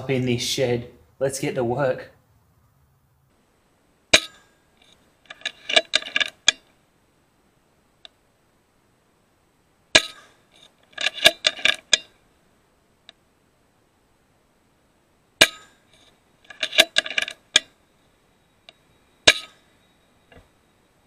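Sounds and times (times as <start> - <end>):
metallic clinks and clatter: 4.2 - 6.6, 10.0 - 12.1, 15.4 - 17.8.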